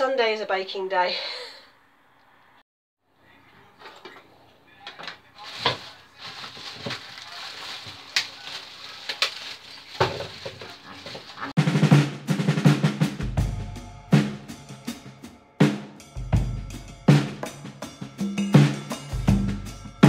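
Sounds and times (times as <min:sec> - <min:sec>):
plastic bag crinkling: 0:05.3 - 0:11.6
drum-led background music: 0:11.4 - 0:20.0.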